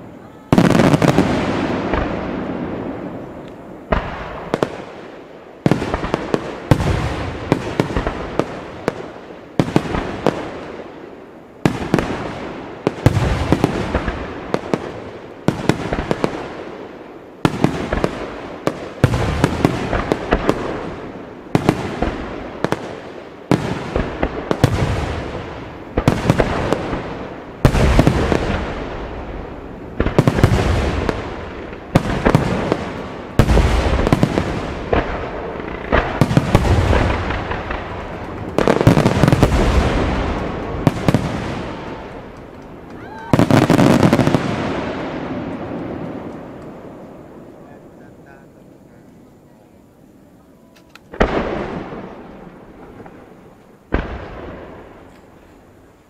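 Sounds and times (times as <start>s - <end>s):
fireworks booming: 0.0s - 49.3s, 51.0s - 56.0s
crackling pops: 34.4s - 44.4s, 45.4s - 47.2s, 50.7s - 52.2s, 52.8s - 55.6s.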